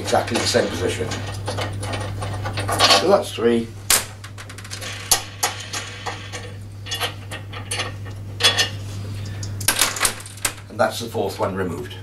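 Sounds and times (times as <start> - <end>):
metal clatter: 4.0 - 8.8.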